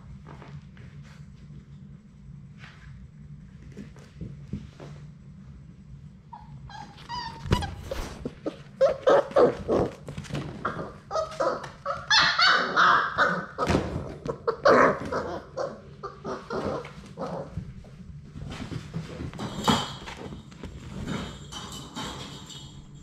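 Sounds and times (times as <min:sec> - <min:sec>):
puppies whining and yipping: 0:06.3 - 0:10.0, 0:10.7 - 0:17.0.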